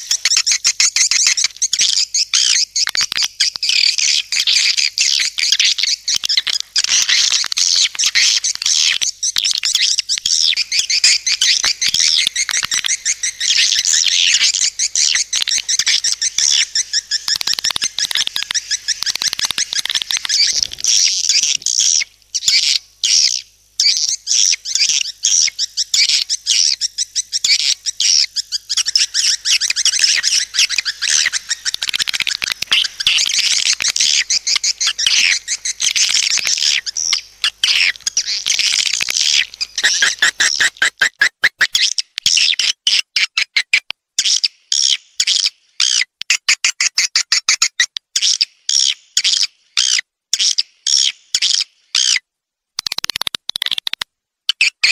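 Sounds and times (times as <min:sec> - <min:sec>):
swiftlets chirping and twittering: 0:00.0 - 0:42.8.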